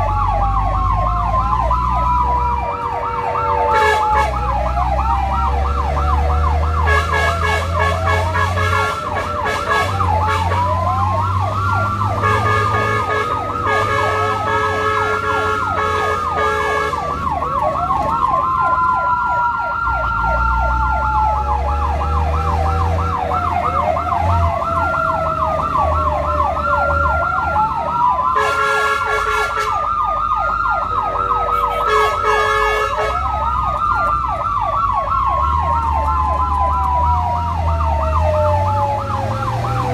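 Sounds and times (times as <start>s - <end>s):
siren wail: 0.0s - 39.9s
siren yelp: 0.0s - 39.9s
buzzy horn blasts: 6.9s - 10.7s, 12.2s - 17.0s, 31.5s - 33.2s.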